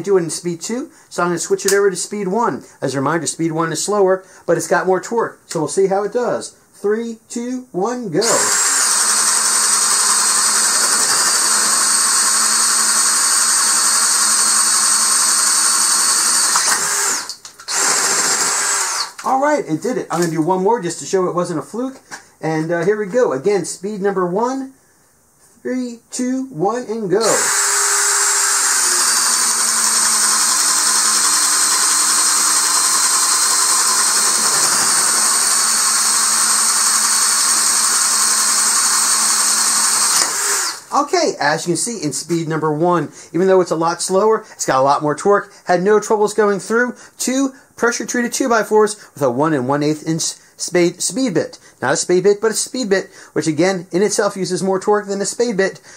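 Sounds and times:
drill bit chewing through wood: 8.2 - 19.2, 27.2 - 40.9
drill motor whining under load: 8.2 - 19.2, 27.2 - 40.9.

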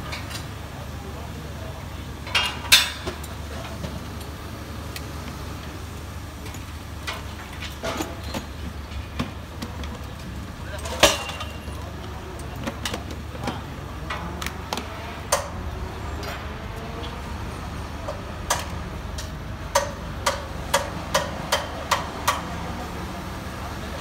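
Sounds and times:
hammer striking steel: 18.5 - 22.5.

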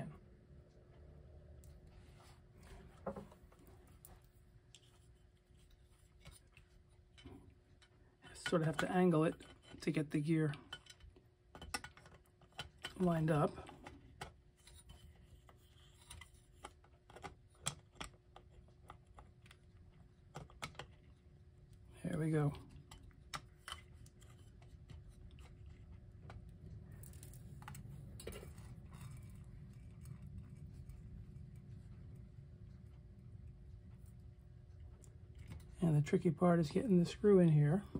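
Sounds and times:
faint steady hum: 0.0 - 37.9.

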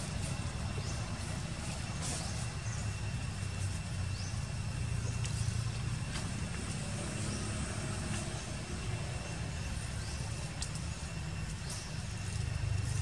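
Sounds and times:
low rumbling background noise: 0.0 - 13.0
faint clicks: 10.5 - 10.9.

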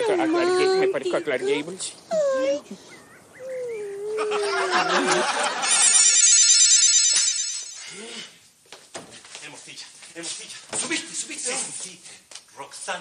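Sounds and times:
loud electric ringing bell: 5.7 - 7.9.

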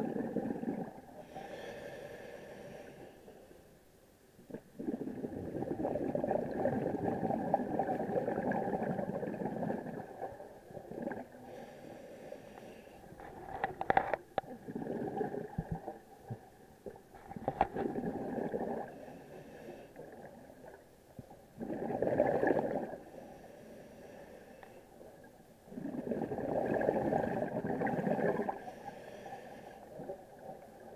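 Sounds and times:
exhaled breath bubbling underwater: 0.0 - 3.1, 4.5 - 13.2, 14.4 - 16.0, 17.3 - 20.4, 21.6 - 24.6, 25.7 - 30.6.

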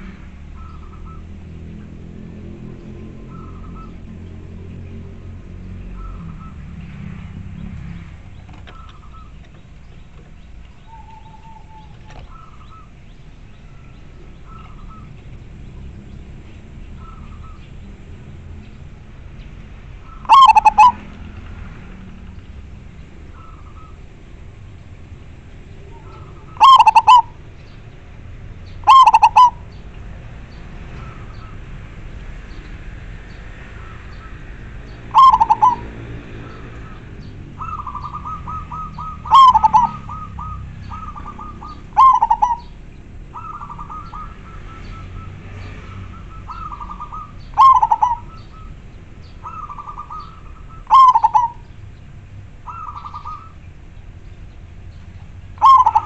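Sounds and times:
dove cooing: 0.0 - 1.4, 2.2 - 17.8, 20.0 - 21.4, 23.2 - 24.1, 25.6 - 27.6, 28.7 - 29.8, 34.8 - 51.8, 52.6 - 53.6, 55.5 - 56.0.

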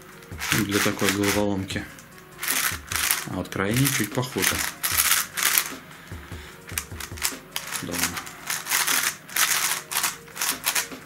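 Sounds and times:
puzzle cube clicking and scraping: 0.0 - 5.9, 6.6 - 11.0.

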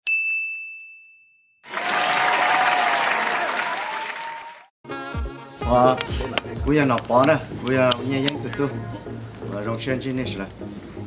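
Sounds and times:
bell-like ding: 0.0 - 1.6
applause: 1.6 - 4.7.

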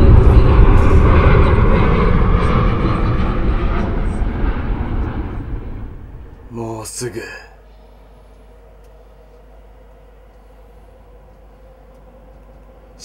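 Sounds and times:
jet engine rumble: 0.0 - 8.8.

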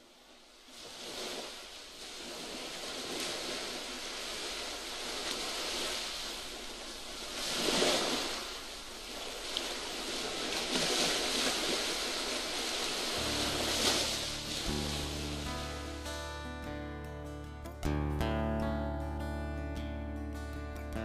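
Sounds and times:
waves breaking: 0.0 - 16.5
guitar music: 13.2 - 21.0.

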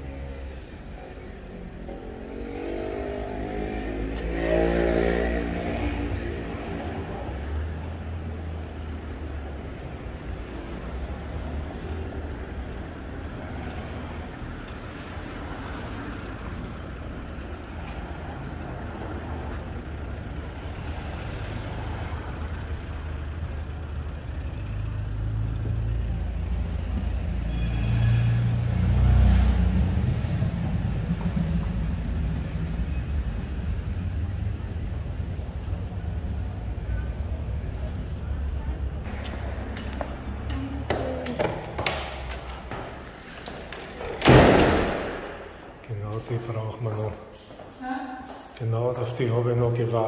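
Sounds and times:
traffic rumble: 0.0 - 50.0
vehicle passing close: 1.9 - 22.7.

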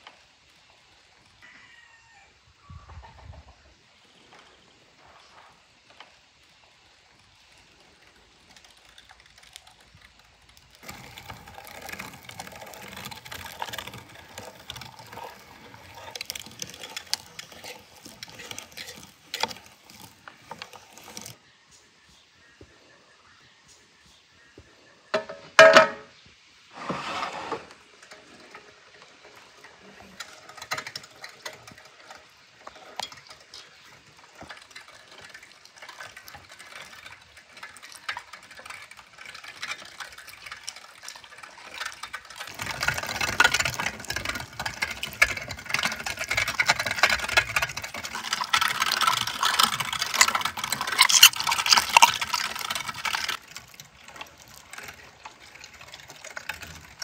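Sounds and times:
hand-cranked meat grinder grinding: 7.0 - 21.4, 26.8 - 57.0.

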